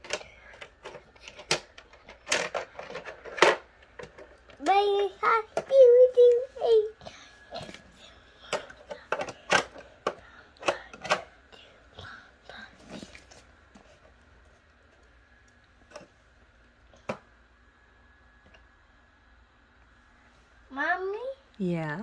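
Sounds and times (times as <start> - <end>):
toy cars and track clattering: 0.0 - 5.9.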